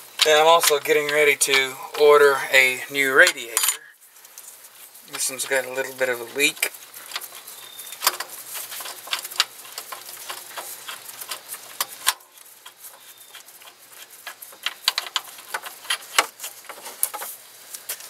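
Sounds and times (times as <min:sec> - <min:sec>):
metallic clicks of bolt unscrewing: 0:00.0 - 0:03.9, 0:07.0 - 0:17.3.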